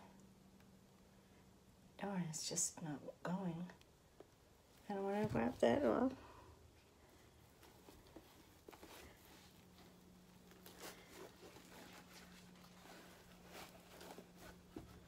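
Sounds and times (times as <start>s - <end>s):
faint low hum: 0.0s - 15.0s
gloved hands rustling canvas: 7.1s - 15.0s.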